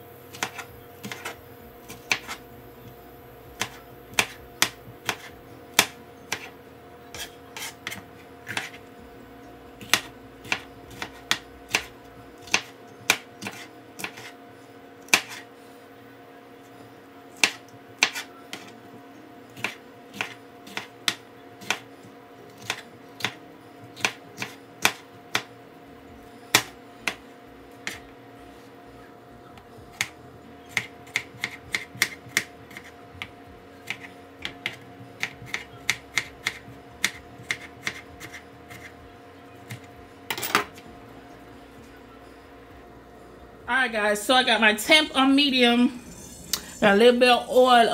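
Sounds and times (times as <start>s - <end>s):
faint steady hum: 0.0s - 47.9s
knife chopping on plastic board: 0.3s - 2.4s, 3.6s - 6.5s, 7.1s - 8.8s, 9.8s - 14.3s, 15.1s - 15.4s, 17.4s - 18.7s, 19.6s - 21.8s, 22.6s - 23.4s, 24.0s - 25.5s, 26.5s - 27.2s, 30.7s - 38.9s.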